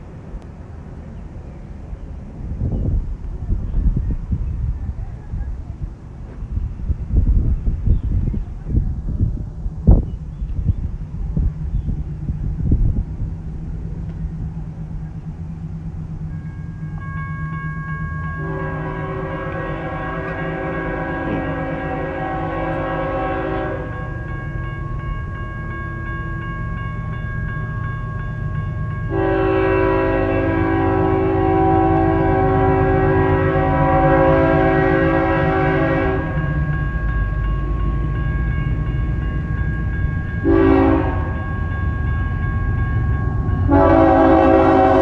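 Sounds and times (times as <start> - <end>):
low rumble of oncoming train: 0.0 - 45.0
crossing signal ringing: 13.5 - 45.0
locomotive air horn blasts: 18.3 - 24.2, 29.1 - 36.6, 40.4 - 41.6, 43.6 - 45.0.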